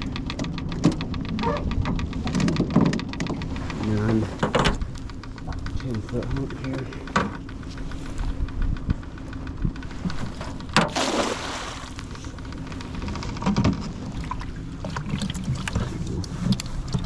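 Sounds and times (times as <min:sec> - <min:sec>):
gear knocking and rattling: 0:00.0 - 0:10.9
low steady rumble: 0:00.0 - 0:17.0
water splash: 0:10.8 - 0:12.0.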